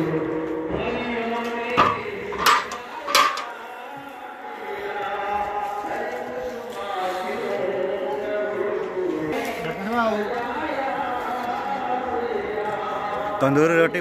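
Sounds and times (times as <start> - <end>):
metal cooking pots clanking: 1.8 - 3.6.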